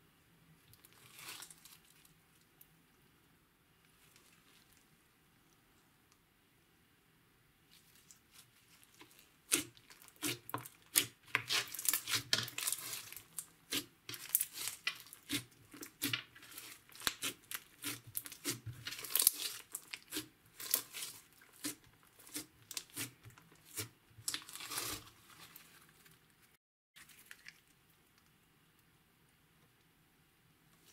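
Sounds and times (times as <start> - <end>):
slime crackling and squishing: 0.7 - 2.2, 7.7 - 26.3.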